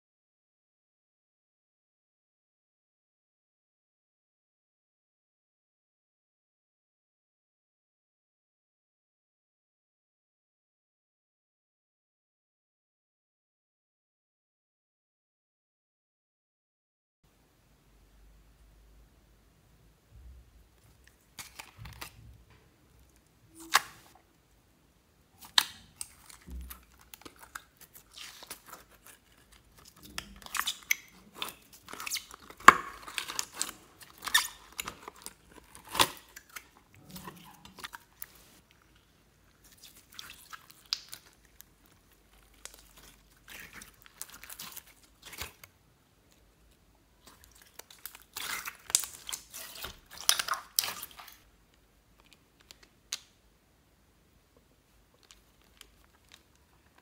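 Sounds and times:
slime squelching and crackling: 0:20.7 - 0:24.3, 0:25.4 - 0:53.4, 0:55.0 - 0:57.0.

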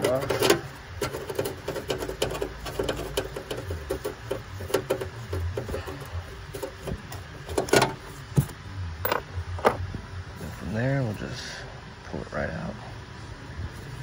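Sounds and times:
clicks and taps of engine parts: 0:00.0 - 0:09.8.

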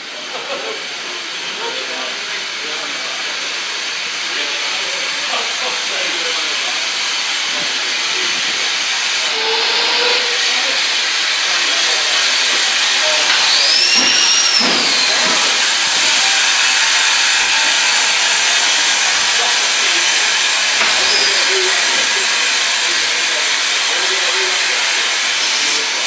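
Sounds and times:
steam locomotive hissing: 0:00.0 - 0:26.0
high squeal: 0:13.0 - 0:15.5, 0:20.9 - 0:21.8.

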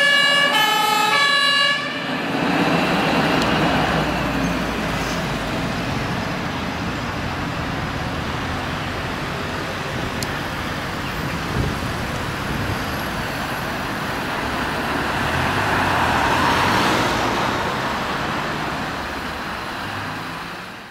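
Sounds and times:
cars driving by: 0:00.0 - 0:20.9.

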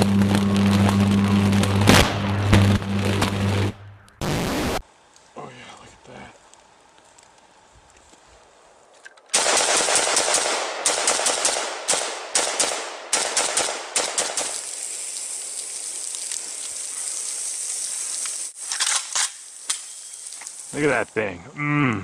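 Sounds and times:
steady hiss: 0:04.2 - 0:09.0, 0:13.7 - 0:21.6
rifle firing rapid shots: 0:09.3 - 0:14.6.

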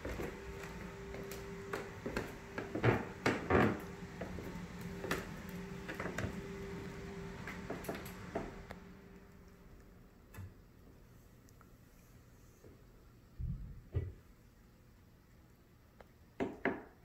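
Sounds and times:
footsteps on stairs: 0:00.0 - 0:06.5
faint steady hum: 0:00.0 - 0:17.0.

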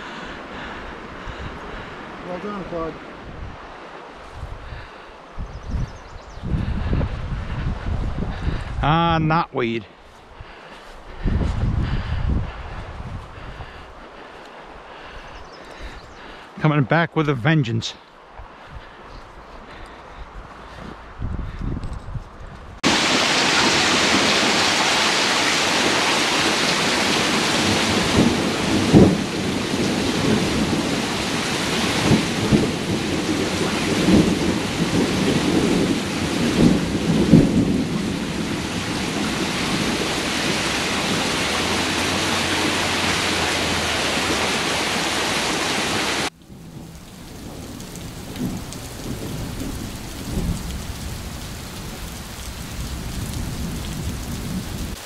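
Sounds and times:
heavy rain pouring: 0:00.0 - 0:05.4, 0:06.4 - 0:21.6, 0:22.8 - 0:55.0
low thunder rumbles: 0:05.5 - 0:09.3, 0:22.8 - 0:55.0.

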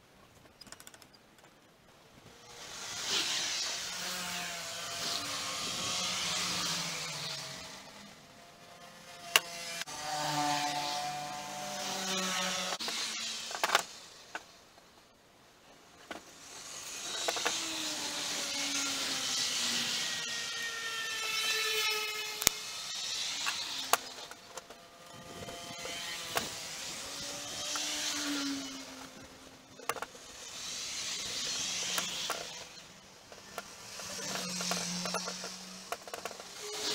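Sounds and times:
sharp clicks and knocks: 0:00.3 - 0:01.7, 0:12.7 - 0:14.9, 0:17.0 - 0:17.6, 0:29.8 - 0:30.2, 0:31.9 - 0:32.7, 0:33.3 - 0:36.9.

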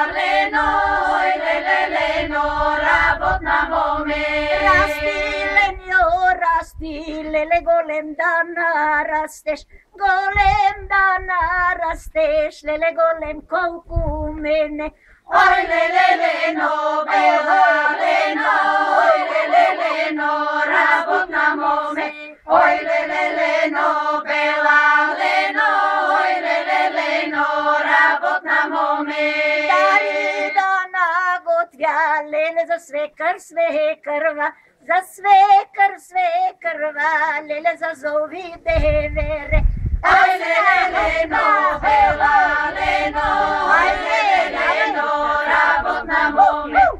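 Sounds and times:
women singing unaccompanied: 0:00.0 - 0:46.9.

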